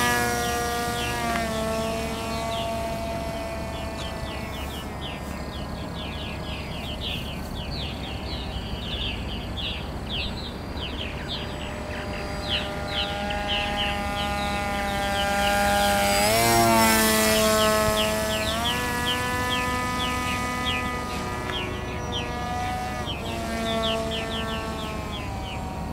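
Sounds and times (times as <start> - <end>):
birds chirping: 0.0 - 25.9
model aircraft propeller humming: 0.0 - 25.9.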